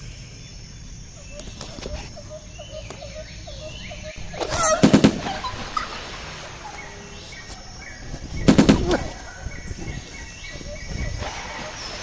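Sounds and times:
outdoor background noise: 0:00.0 - 0:12.0
burst of rapid gunshots: 0:04.6 - 0:05.6, 0:08.4 - 0:09.2.

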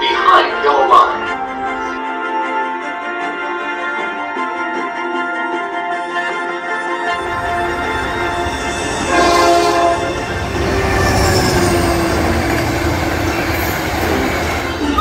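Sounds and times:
locomotive horn: 0:00.0 - 0:15.0
train rumbling past: 0:07.1 - 0:15.0.

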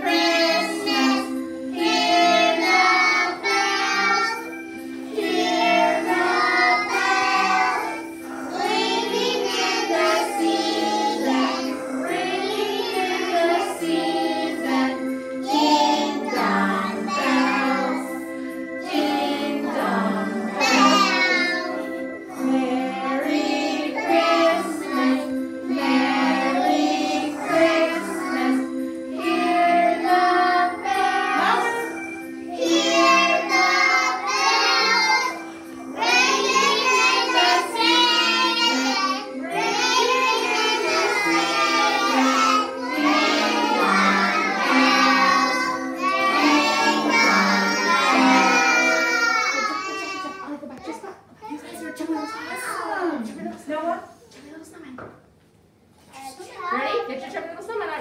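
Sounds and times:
children singing together: 0:00.0 - 0:50.6
musical accompaniment: 0:00.0 - 0:50.7.

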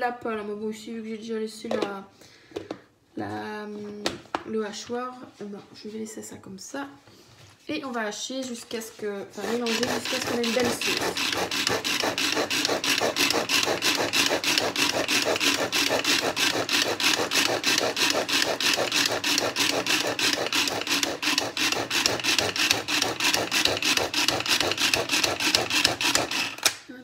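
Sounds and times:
chopper blades blending sauce: 0:09.4 - 0:26.7
pull cord rasping: 0:09.4 - 0:26.8.

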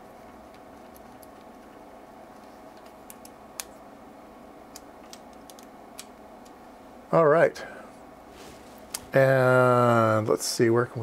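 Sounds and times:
test equipment hum: 0:00.0 - 0:11.0
cable connectors clicking: 0:04.7 - 0:06.6.

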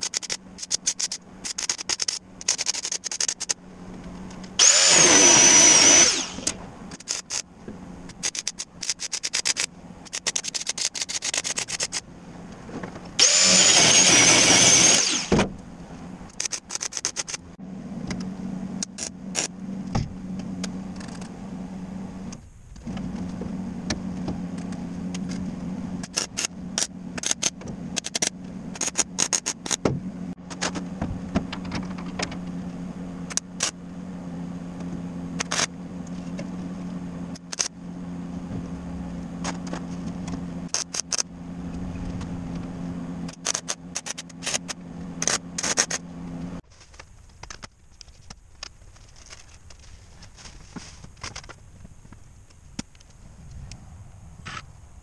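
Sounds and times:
arc welding buzz and crackle: 0:04.6 - 0:06.6, 0:13.2 - 0:15.4.

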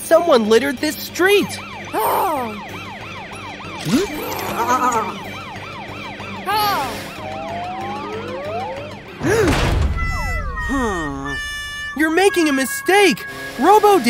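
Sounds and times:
background music: 0:00.0 - 0:14.0
cartoon police siren: 0:01.4 - 0:14.0
swooping sound effects: 0:06.3 - 0:14.0.

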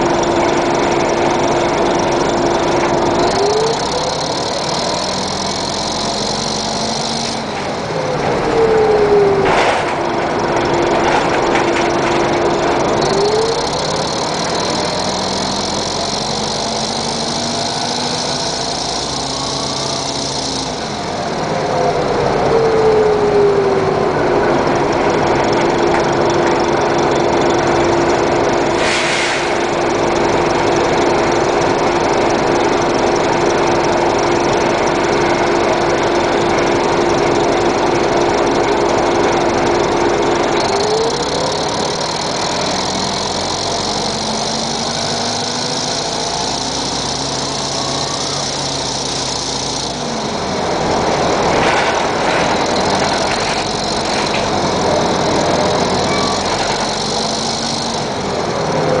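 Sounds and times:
bus diesel engine idling: 0:00.0 - 0:59.0
brief hiss: 0:28.8 - 0:29.6.

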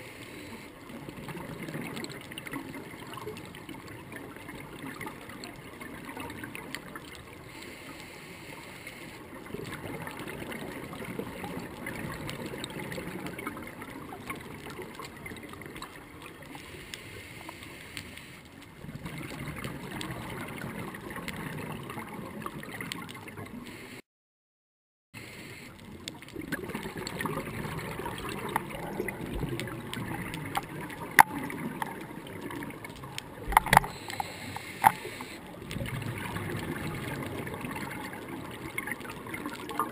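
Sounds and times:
muffled underwater water noise: 0:00.0 - 0:24.0, 0:25.2 - 0:39.9
bubbling gurgles: 0:00.6 - 0:07.6, 0:09.2 - 0:16.8, 0:18.6 - 0:23.7, 0:25.8 - 0:39.9
sharp clicks: 0:32.9 - 0:35.4.

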